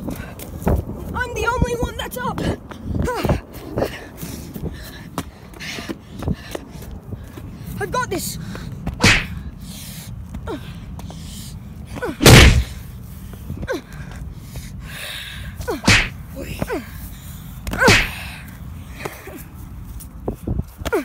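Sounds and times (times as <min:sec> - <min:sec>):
wind rumble on microphone: 0:00.0 - 0:21.0
whooshing hits: 0:12.2 - 0:12.8.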